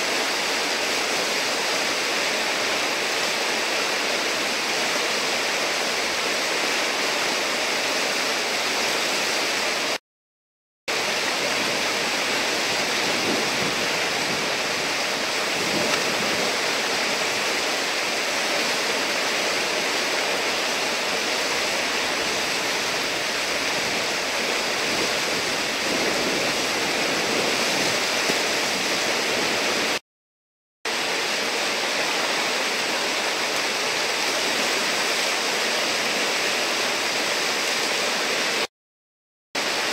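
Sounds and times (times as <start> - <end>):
whitewater rushing: 0.0 - 10.0, 10.9 - 30.0, 30.9 - 38.7, 39.6 - 39.9.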